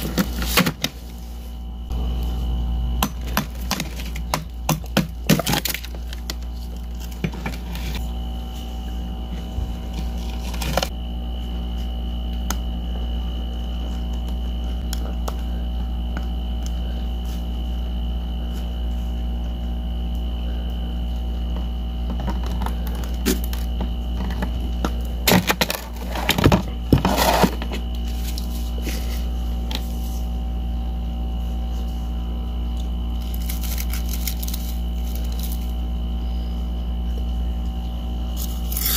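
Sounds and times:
low hum: 0.0 - 38.9
ice cracking and crunching: 5.2 - 7.2, 33.2 - 35.7, 38.4 - 38.9.

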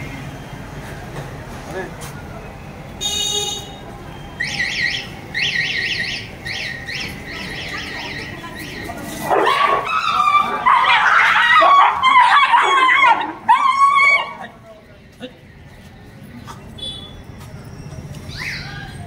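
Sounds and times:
dogs whimpering squeals: 7.6 - 14.4, 17.7 - 19.0.

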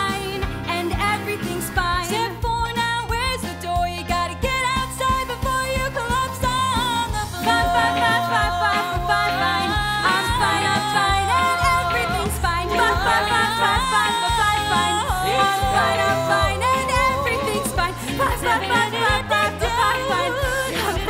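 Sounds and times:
instrumental backing: 0.0 - 21.0
woman singing: 0.0 - 21.0.

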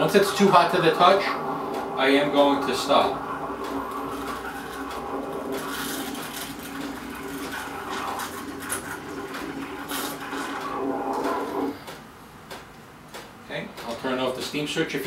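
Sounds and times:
steam wand hissing frothing milk: 0.0 - 11.9
espresso machine pump humming: 0.0 - 12.0.

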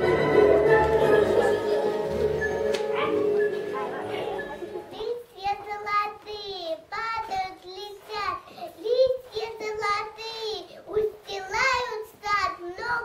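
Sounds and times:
girl singing: 5.0 - 13.0.

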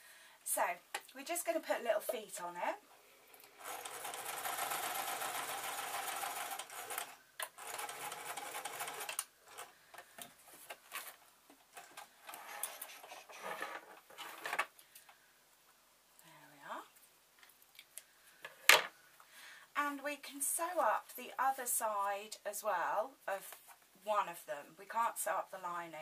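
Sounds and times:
sewing machine stitching: 3.6 - 9.7.

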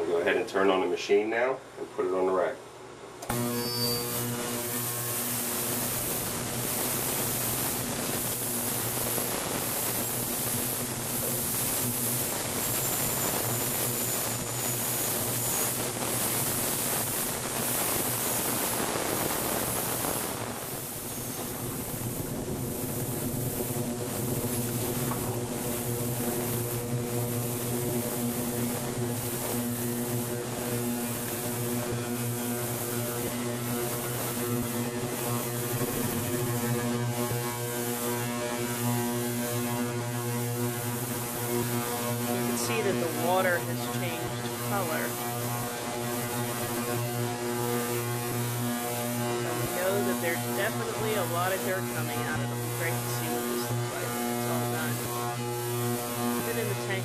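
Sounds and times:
low electrical hum: 0.0 - 57.0
hiss of cavitation in liquid: 4.1 - 57.0.

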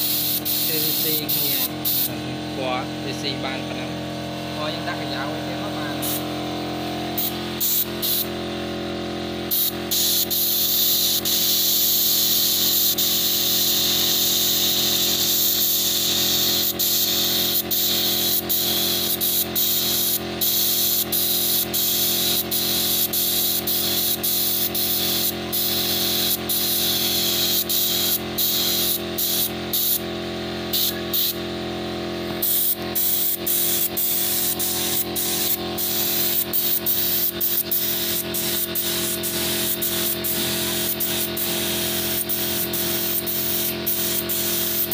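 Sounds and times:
spray gun hissing: 0.0 - 2.4, 4.9 - 8.4, 9.5 - 30.1, 30.7 - 31.4, 32.2 - 44.9
steady low hum: 0.0 - 44.9.

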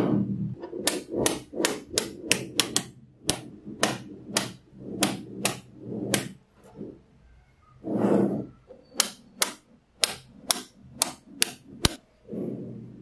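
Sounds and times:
magnetic balls snapping together: 0.8 - 6.3, 9.0 - 12.0.

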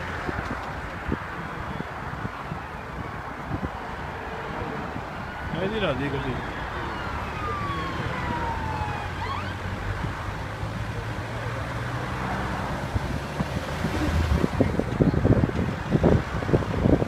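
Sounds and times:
car engine and road noise: 0.0 - 17.0
faint siren wailing: 1.4 - 12.2.

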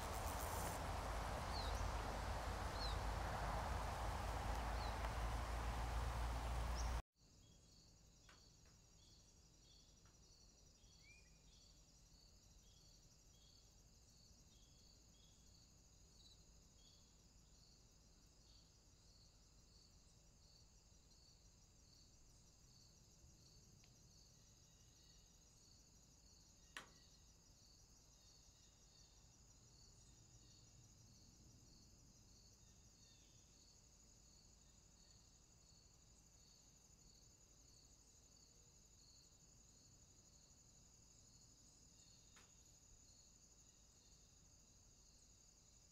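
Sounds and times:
bush cricket chirping: 0.0 - 7.0, 18.4 - 45.9
loud outdoor noise: 0.0 - 7.0
thin high hiss: 0.0 - 7.0.

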